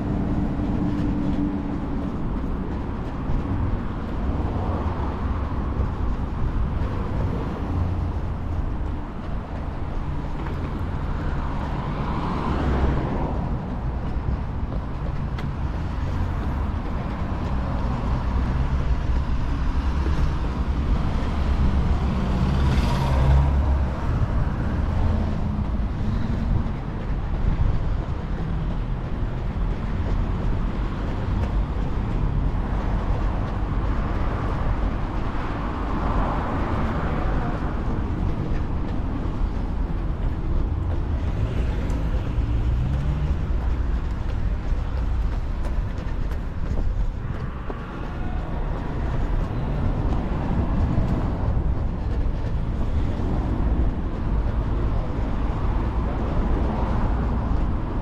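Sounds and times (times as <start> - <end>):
cars passing by: 0.0 - 58.0
low rumble of traffic: 0.0 - 58.0.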